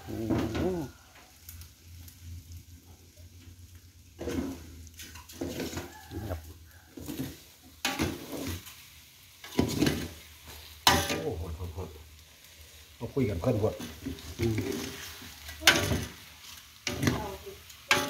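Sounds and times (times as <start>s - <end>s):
light sizzle: 0.0s - 18.0s
metal clanking on pot: 4.2s - 8.7s, 9.4s - 10.2s, 10.8s - 11.4s, 13.7s - 16.2s, 16.8s - 18.0s
metal ladle scraping pot: 4.2s - 8.8s.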